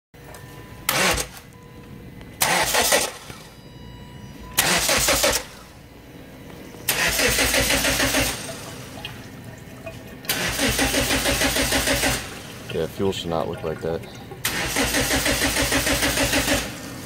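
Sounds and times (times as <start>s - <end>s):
faint steady hum: 0.2s - 2.4s, 3.2s - 10.3s
car engine cranking on starter: 0.9s - 1.6s, 2.4s - 3.5s, 4.6s - 5.7s, 6.8s - 9.0s, 10.2s - 12.9s, 14.4s - 17.0s.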